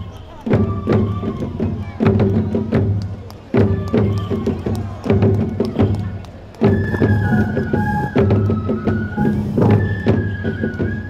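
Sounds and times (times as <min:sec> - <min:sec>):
bamboo flute melody: 0:00.0 - 0:11.0
taiko drum strokes: 0:00.5 - 0:11.0.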